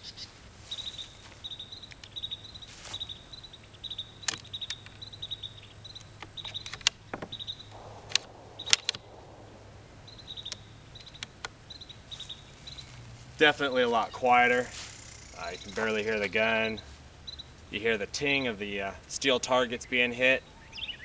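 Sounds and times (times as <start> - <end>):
suppressed rifle clicks: 6.0 - 11.6
insects trilling: 13.7 - 17.6.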